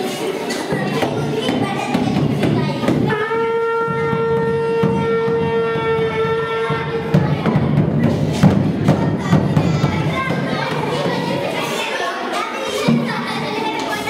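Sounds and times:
animal horn blown: 0:03.1 - 0:07.0.

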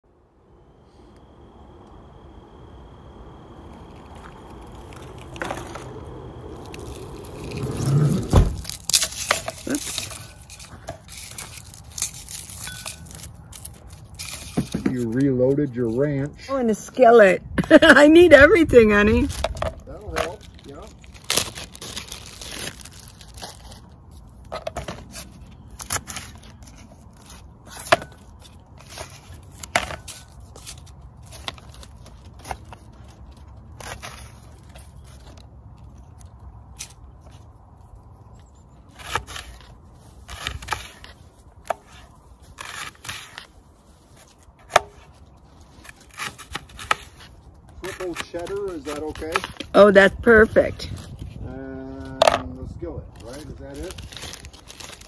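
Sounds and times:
plastic bag crinkling: 0:03.6 - 0:14.8, 0:19.1 - 0:24.5, 0:53.2 - 0:55.0.

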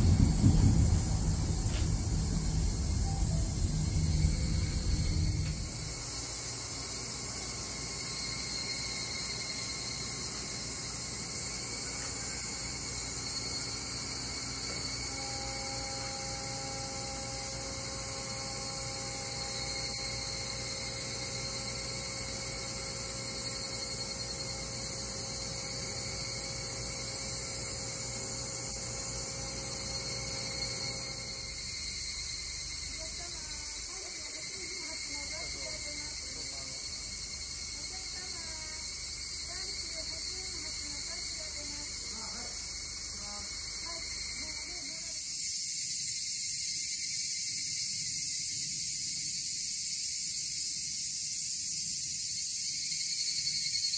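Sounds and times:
machinery hum and whine: 0:00.0 - 0:45.2
insects buzzing: 0:00.0 - 0:53.9.

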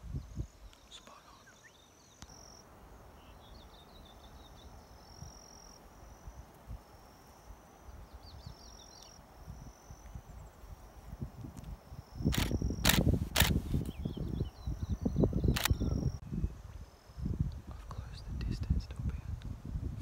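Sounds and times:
birds chirping: 0:00.2 - 0:06.4, 0:12.1 - 0:16.2.

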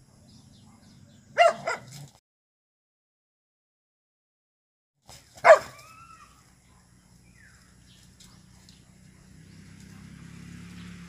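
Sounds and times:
dog barking and whining: 0:01.4 - 0:02.0, 0:05.4 - 0:06.8.

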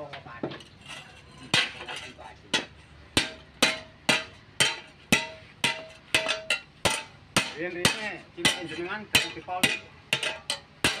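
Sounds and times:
hammer striking metal on anvil: 0:02.5 - 0:11.0.

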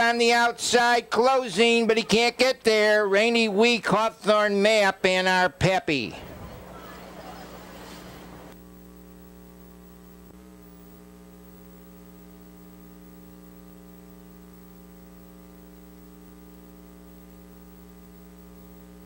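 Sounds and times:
electrical mains hum: 0:00.0 - 0:19.0.

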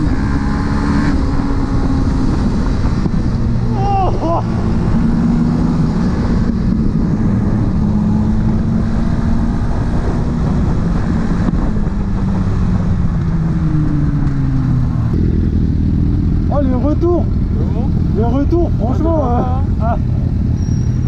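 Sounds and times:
motorcycle engine cruising: 0:00.0 - 0:21.0
wind rumble on microphone: 0:00.0 - 0:21.0.

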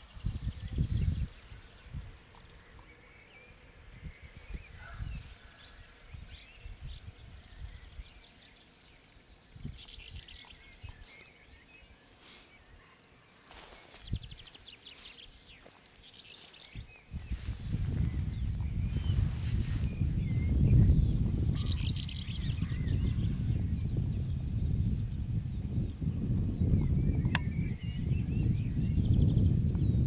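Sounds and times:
low rumble on microphone: 0:00.0 - 0:02.8, 0:03.7 - 0:08.2, 0:16.4 - 0:30.0
small birds chirping: 0:00.0 - 0:30.0.

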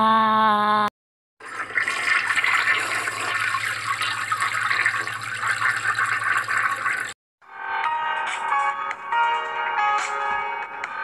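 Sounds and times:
toilet flushing: 0:01.4 - 0:07.2.

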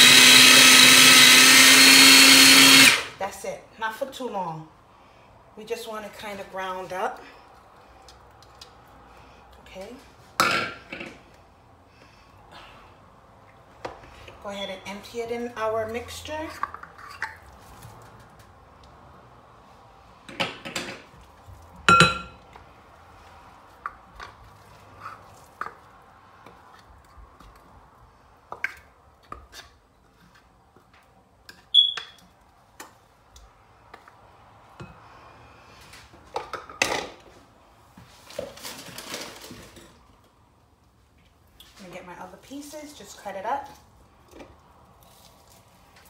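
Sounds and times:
ringing ping: 0:21.9 - 0:22.4.

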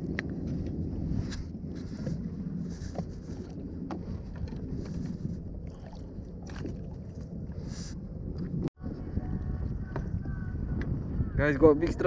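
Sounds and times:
wind rumbling on microphone: 0:00.0 - 0:12.0
water lapping around kayak: 0:00.4 - 0:08.6.

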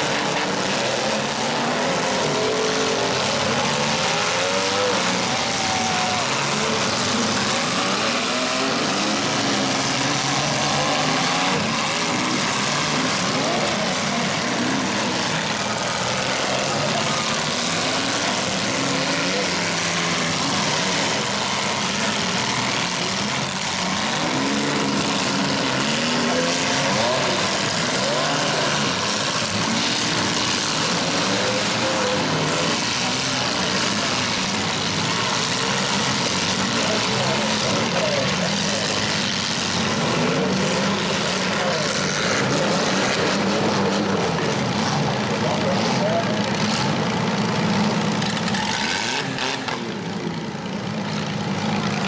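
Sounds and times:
many car engines revving: 0:00.0 - 0:52.0.

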